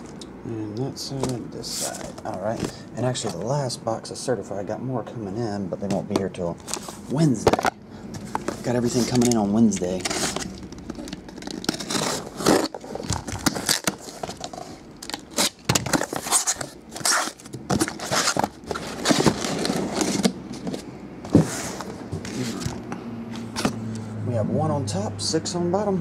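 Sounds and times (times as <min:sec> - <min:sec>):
boxes scraping against cardboard: 0:01.1 - 0:03.5, 0:06.6 - 0:22.8.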